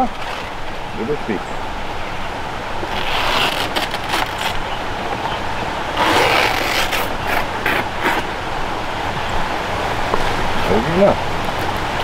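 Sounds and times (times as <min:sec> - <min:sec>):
large leaf tearing and rustling: 0:02.9 - 0:04.8, 0:05.9 - 0:08.3.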